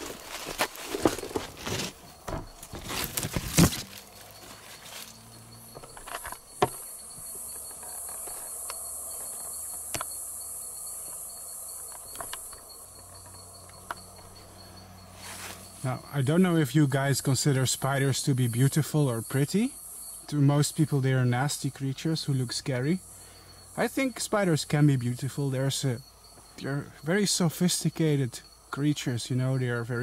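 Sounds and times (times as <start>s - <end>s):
rustling in leaf litter: 0.0s - 5.2s, 15.2s - 15.8s
insect buzzing high-pitched: 0.0s - 30.0s.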